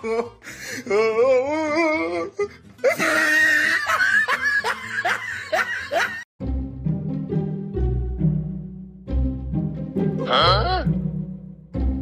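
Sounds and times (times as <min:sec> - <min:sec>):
background music: 0:00.0 - 0:12.0
person laughing: 0:02.9 - 0:06.2.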